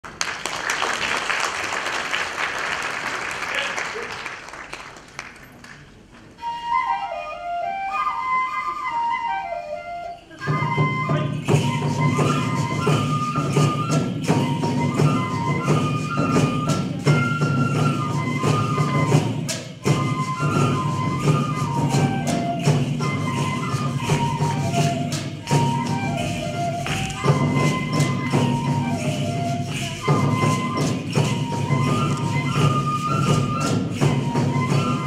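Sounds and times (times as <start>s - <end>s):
applause: 0.0s - 6.2s
bamboo flute melody: 6.3s - 35.0s
drums and percussion beat: 10.3s - 35.0s.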